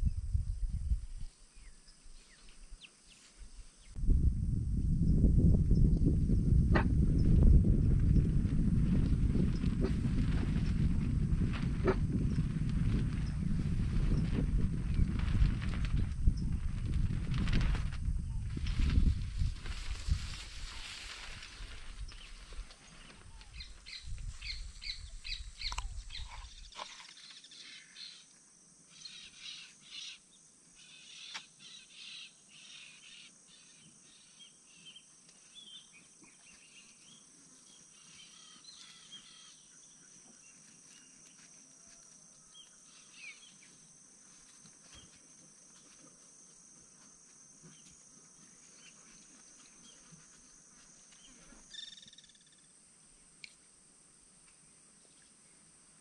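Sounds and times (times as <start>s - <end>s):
low rumble: 4.0s - 20.0s.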